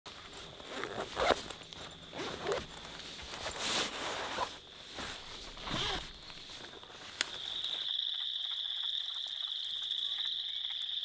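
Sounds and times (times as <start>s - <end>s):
fabric rustling: 0.1s - 7.4s
zipper pulled open: 0.3s - 6.6s.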